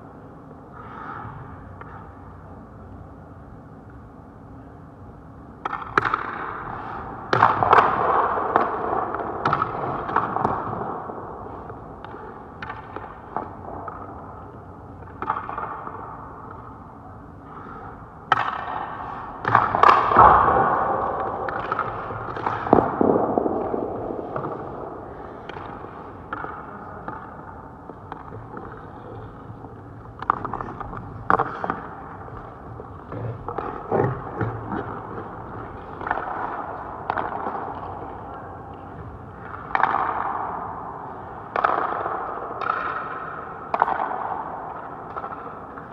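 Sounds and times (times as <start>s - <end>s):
puck hitting pads and boards: 5.5s - 45.9s
stick cracking on puck: 5.6s - 11.0s, 11.6s - 16.7s, 18.3s - 45.9s
skate blades scraping ice: 28.3s - 38.2s.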